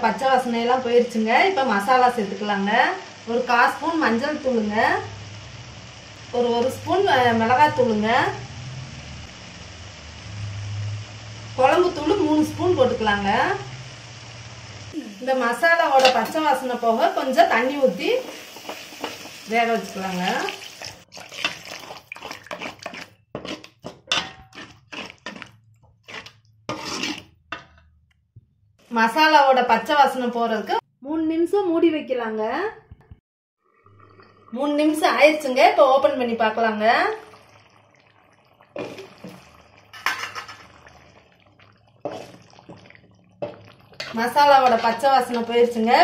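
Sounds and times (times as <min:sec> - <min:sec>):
metal spoon scraping pan: 0:16.0 - 0:16.4, 0:21.2 - 0:27.8, 0:39.9 - 0:40.8, 0:42.0 - 0:42.8, 0:43.4 - 0:45.6
sauce bubbling pops: 0:40.7 - 0:44.2.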